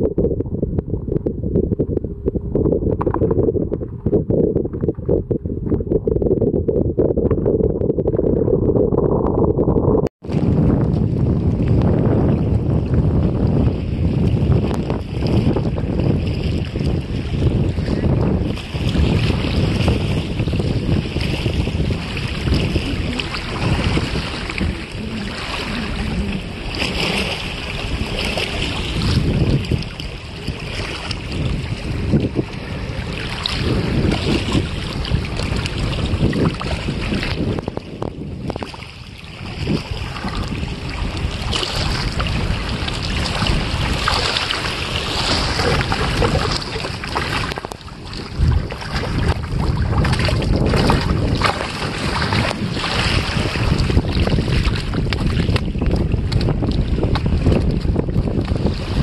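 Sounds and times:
wind gusting on microphone: 0.0s - 59.0s
small waves lapping: 16.3s - 37.6s, 38.5s - 59.0s.

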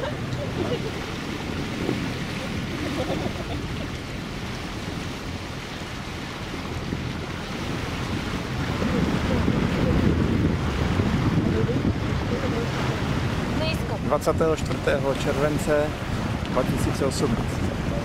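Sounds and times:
water rushing along boat hull: 0.0s - 18.0s
wind buffeting microphone: 0.0s - 18.0s.

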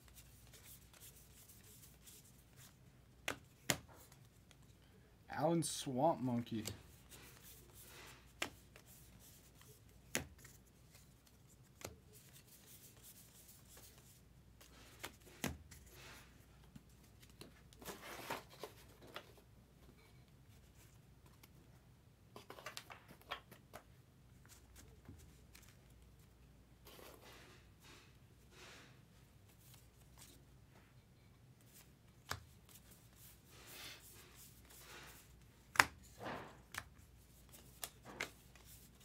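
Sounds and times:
cards rustling: 0.0s - 4.8s, 6.1s - 19.5s, 22.3s - 27.4s, 31.6s - 39.0s.

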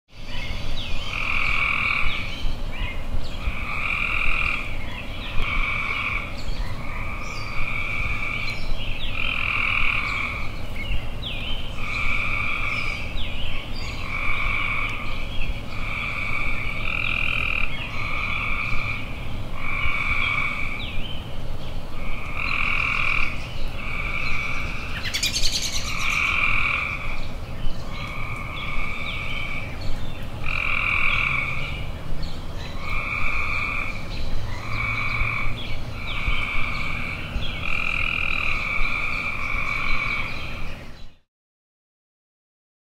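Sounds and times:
frog croaking: 1.1s - 2.2s, 3.4s - 4.8s, 5.4s - 10.6s, 11.8s - 13.1s, 14.0s - 20.9s, 22.0s - 27.3s, 27.9s - 29.8s, 30.4s - 31.8s, 32.8s - 40.5s.

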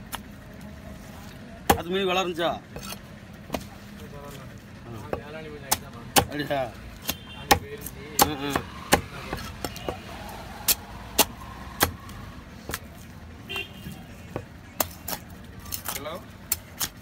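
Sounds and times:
knife chopping fish on wood: 5.1s - 10.1s, 12.6s - 12.9s, 14.3s - 17.0s.

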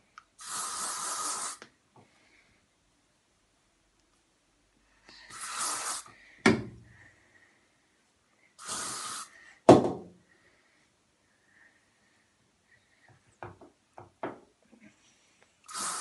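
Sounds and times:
aerosol spray bursts: 0.4s - 1.6s, 5.3s - 6.1s, 8.6s - 9.3s, 15.7s - 16.0s.

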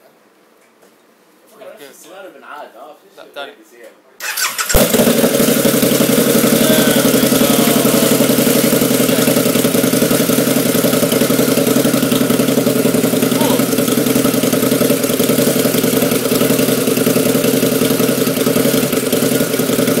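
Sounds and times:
motorcycle engine idling: 4.2s - 20.0s.

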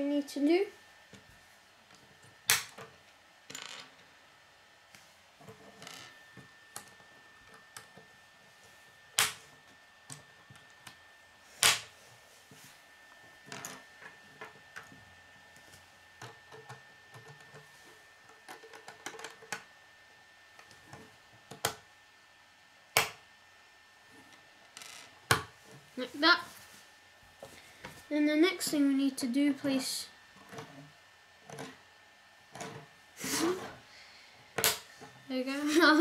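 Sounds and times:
plastic pieces clicking and rattling: 18.5s - 19.6s
plastic pieces snapping together: 23.0s - 23.2s.

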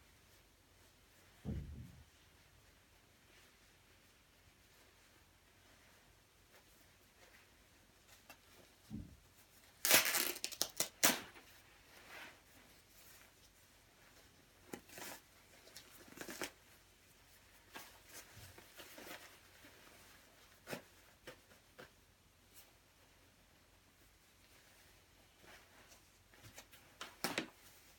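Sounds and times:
fabric ripping: 9.8s - 11.4s.

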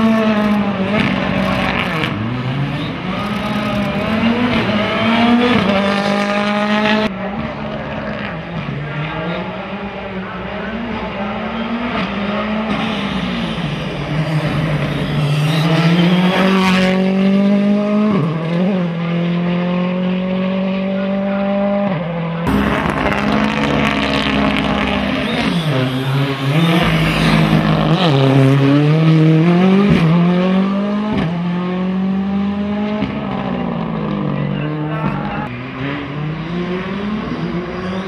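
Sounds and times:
rally car engine revving: 0.0s - 38.0s.

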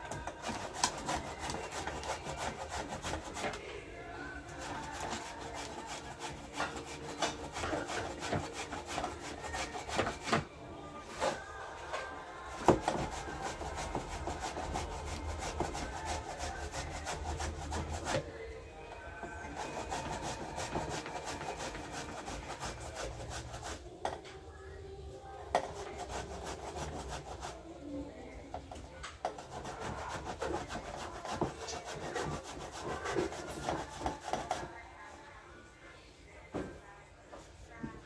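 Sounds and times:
food grated on a grater: 0.0s - 3.7s, 4.5s - 10.5s, 12.5s - 18.3s, 19.4s - 23.8s, 25.5s - 27.7s, 28.6s - 34.8s.

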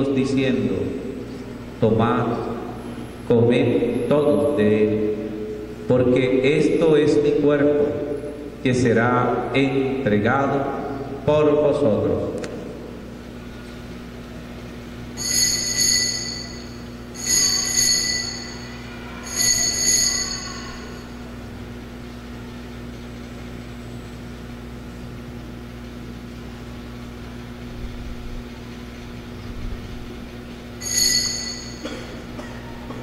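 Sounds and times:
steady low hum: 0.0s - 33.0s
altar bells ringing: 15.2s - 21.4s, 30.8s - 32.7s.

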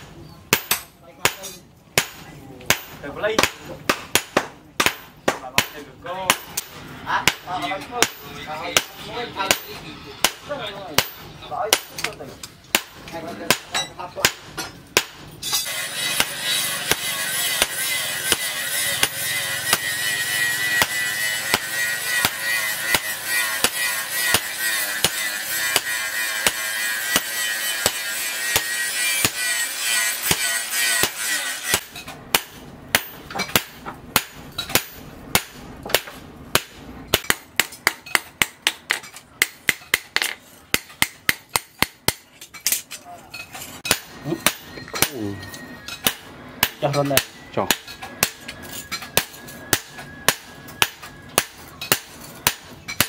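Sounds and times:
hammer striking metal on anvil: 0.0s - 42.8s, 43.4s - 53.0s.

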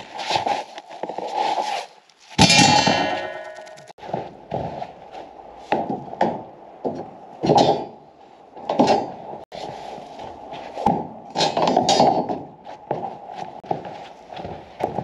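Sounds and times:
footsteps on snow: 0.0s - 2.4s, 3.4s - 6.0s, 12.6s - 15.0s
steel rebar being handled: 8.6s - 12.5s.

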